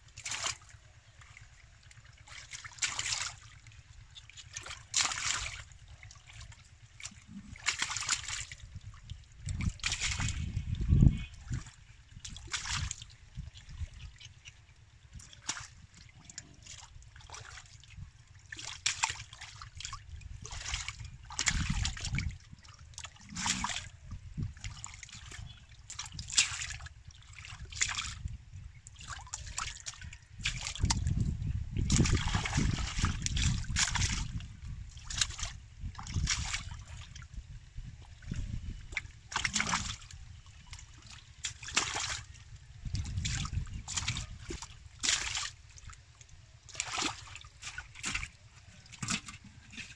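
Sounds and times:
splashing in shallow water: 0.0 - 49.9
low rumbling: 8.7 - 12.2.

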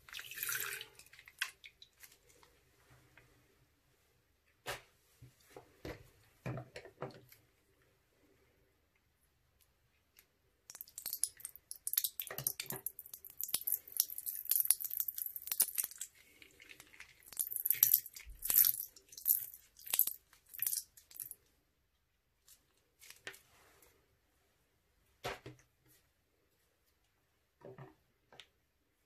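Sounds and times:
slime squelching and popping: 10.7 - 21.4.

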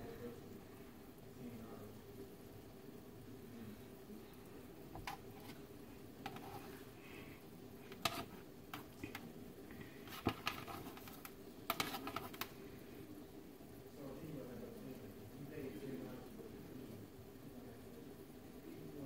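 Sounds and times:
clicks and taps on metal baking sheet: 10.2 - 12.5.

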